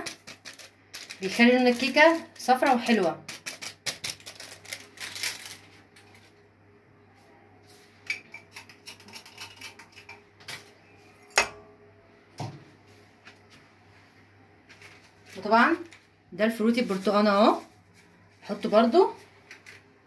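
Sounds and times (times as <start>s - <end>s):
kitchen things clicking and clinking: 0.0s - 2.2s, 8.0s - 10.7s
faint low hum: 4.3s - 20.0s.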